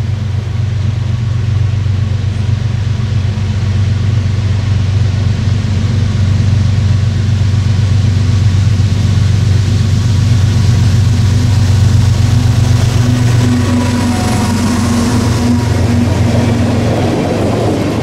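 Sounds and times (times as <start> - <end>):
diesel locomotive engine drone: 0.0 - 18.0
rising hiss: 10.0 - 18.0.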